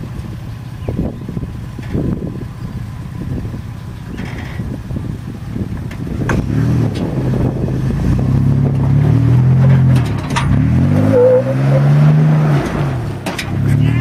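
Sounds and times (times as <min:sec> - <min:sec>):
engine revving under load: 0:05.9 - 0:14.0.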